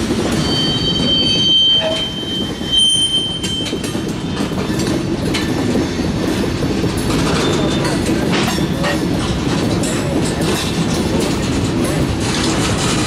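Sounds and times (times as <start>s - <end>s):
train wheels rumbling on track: 0.0s - 13.0s
high-pitched wheel squeal: 0.3s - 3.9s.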